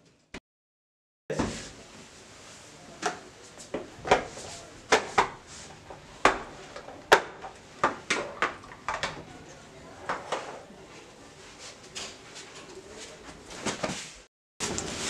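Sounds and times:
kitchen items knocking on counter: 6.2s - 9.2s.

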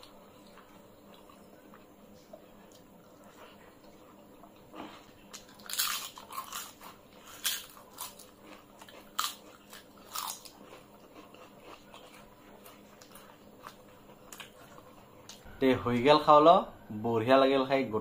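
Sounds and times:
soft chewing: 0.0s - 16.1s
crunching bites of fried cracker: 4.9s - 14.6s.

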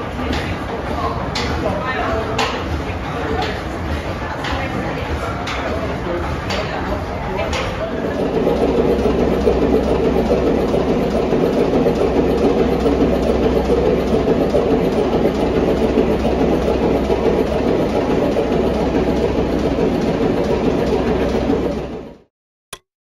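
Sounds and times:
stationary engine beat: 7.3s - 22.3s
low hum: 7.8s - 22.3s.

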